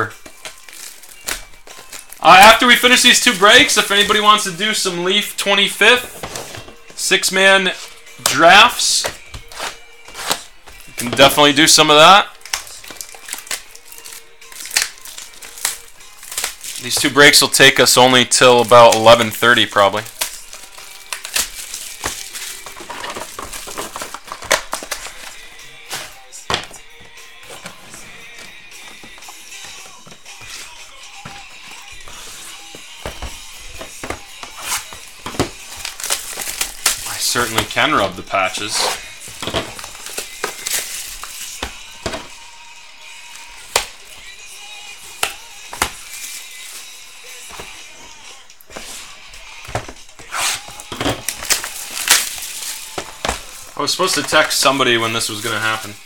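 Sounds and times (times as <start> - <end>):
plastic wrapping crinkling: 0.0 - 4.6, 9.4 - 26.8, 29.9 - 42.4, 45.0 - 47.8, 48.6 - 56.0
background music: 0.0 - 56.0
card boxes tapping and knocking: 5.5 - 7.0, 8.2 - 11.4, 18.8 - 42.4, 48.6 - 56.0.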